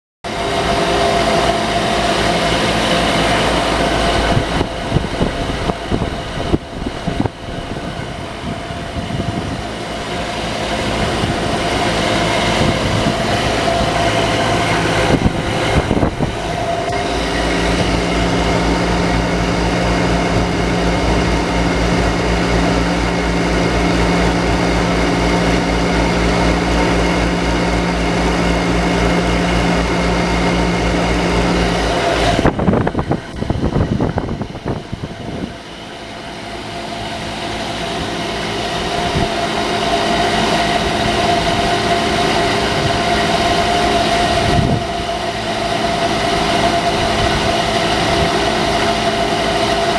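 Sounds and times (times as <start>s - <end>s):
air conditioning unit humming: 0.3s - 49.9s.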